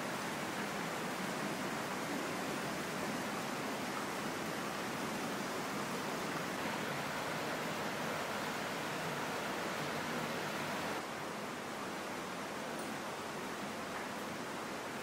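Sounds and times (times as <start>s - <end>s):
rush of running water: 0.0s - 15.0s.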